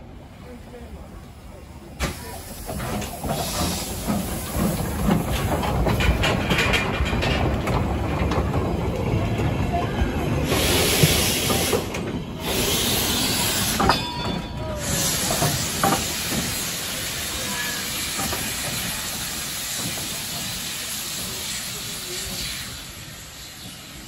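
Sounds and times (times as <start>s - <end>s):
steam locomotive running past: 0.0s - 24.0s
loud steam hiss: 1.7s - 6.1s, 10.4s - 14.0s, 14.6s - 24.0s
wheels knocking and clanking: 2.6s - 9.7s.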